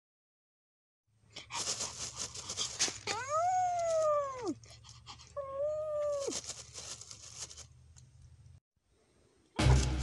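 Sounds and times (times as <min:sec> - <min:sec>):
crackly rustle: 0:01.4 - 0:08.3
puppy whining: 0:03.0 - 0:04.6, 0:05.3 - 0:06.4.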